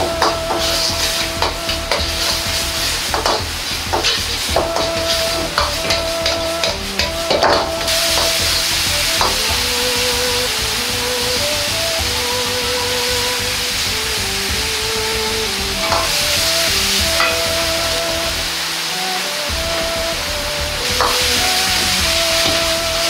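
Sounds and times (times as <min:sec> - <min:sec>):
sauce sizzling: 0:00.0 - 0:23.0
soft background music: 0:00.0 - 0:23.0
metal ladle scraping a wok: 0:00.2 - 0:09.4, 0:15.8 - 0:18.0.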